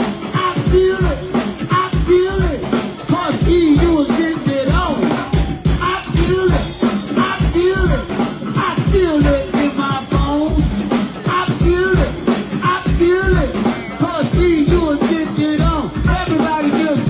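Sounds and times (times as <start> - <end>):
drum and bass beat: 0.0 - 17.0
person singing: 0.0 - 17.0.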